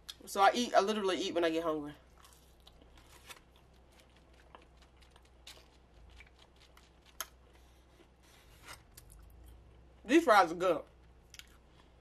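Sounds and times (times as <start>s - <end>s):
fries being chewed: 2.1s - 9.9s.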